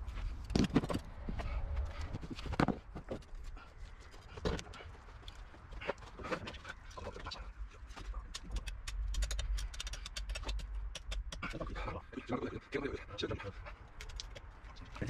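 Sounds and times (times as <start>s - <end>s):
quick crackling clicks: 8.2s - 11.4s.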